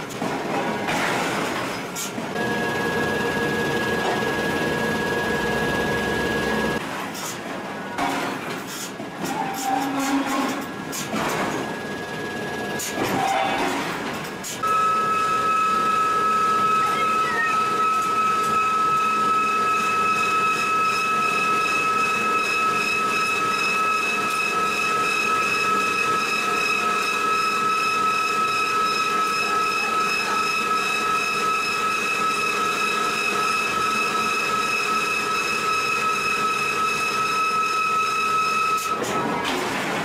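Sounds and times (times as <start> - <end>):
industrial machinery whine: 2.3 - 6.9, 10.6 - 40.0.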